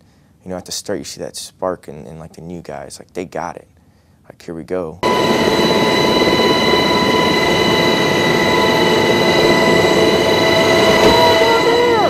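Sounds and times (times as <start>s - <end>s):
helicopter engines and rotors roaring: 5.0s - 12.0s
high whine: 5.0s - 12.0s.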